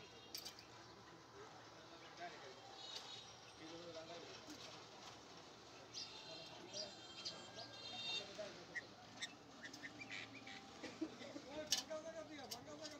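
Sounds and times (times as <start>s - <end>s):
bird chirping calls: 5.9s - 10.8s.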